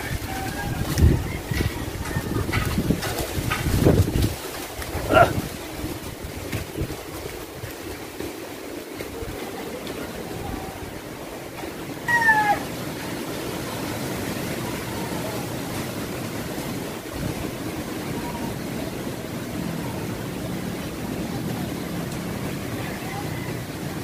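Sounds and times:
strong wind rushing: 0.0 - 8.2, 10.1 - 21.2
high-pitched cry: 12.1 - 12.7.

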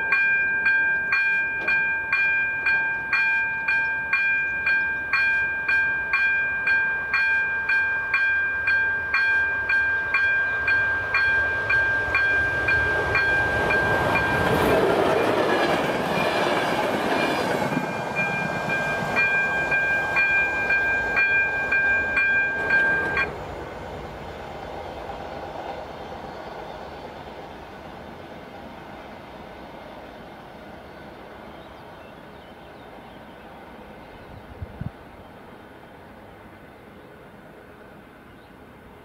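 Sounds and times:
level crossing warning bell: 0.0 - 14.6, 17.1 - 23.3
passenger train rushing past: 0.0 - 39.0.

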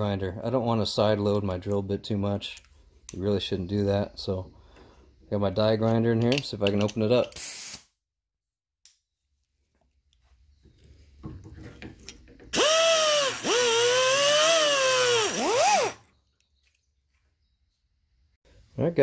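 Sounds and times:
die grinder whining: 12.5 - 16.0.

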